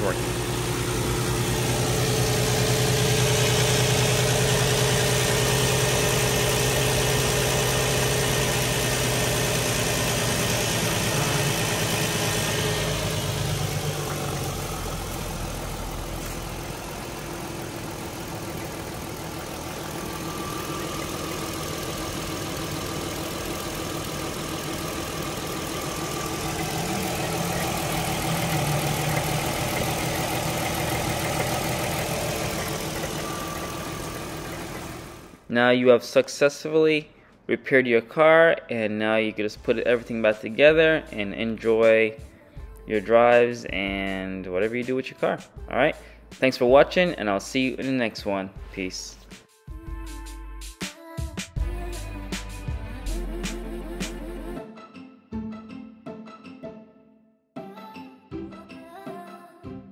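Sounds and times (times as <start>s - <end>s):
car engine idling: 0.0s - 35.5s.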